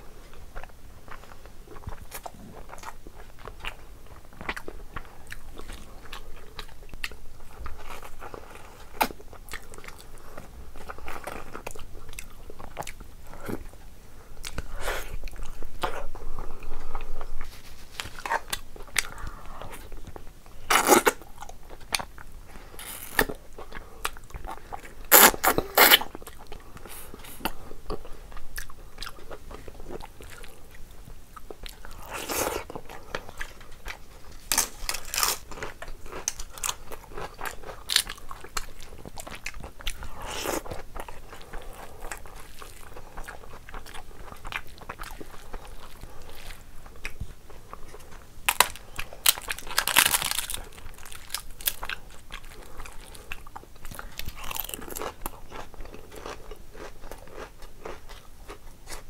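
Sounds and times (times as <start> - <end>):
person chewing food: 0.2 - 59.0
crunchy bites: 33.4 - 41.2, 48.5 - 58.2.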